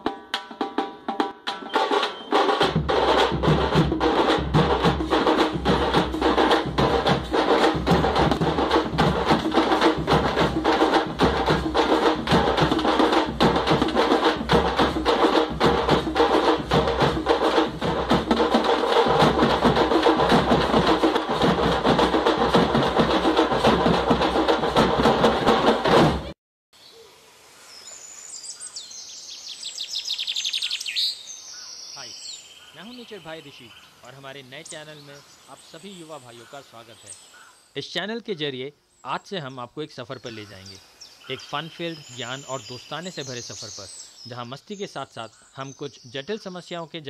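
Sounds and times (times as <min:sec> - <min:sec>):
wood block knocks and drums: 0:00.0 - 0:26.4.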